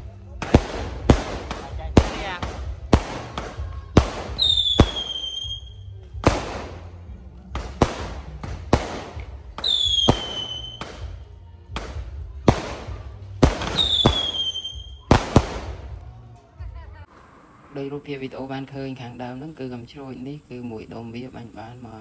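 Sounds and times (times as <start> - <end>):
fireworks bangs: 0.0 - 16.0
fireworks whistles falling in pitch: 4.4 - 5.9, 9.6 - 10.8, 13.7 - 15.1.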